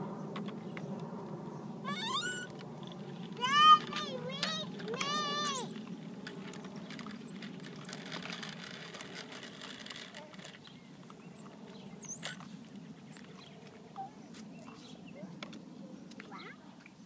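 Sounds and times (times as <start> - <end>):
plastic wheels rolling on concrete: 1.9 - 13.8.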